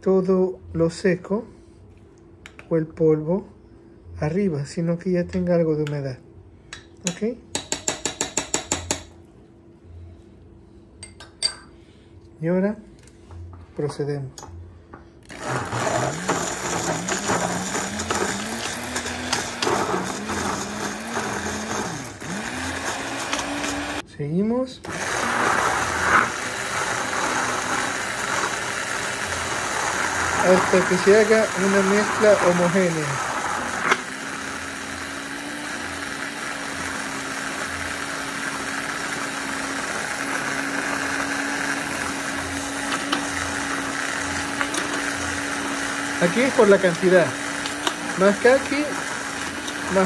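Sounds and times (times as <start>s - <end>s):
immersion blender motor running: 15.3s - 24.0s, 24.8s - 50.0s.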